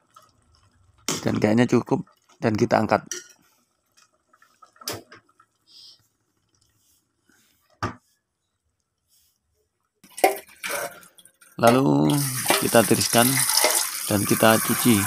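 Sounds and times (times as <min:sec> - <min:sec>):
water splashing into colander: 0:10.0 - 0:15.0.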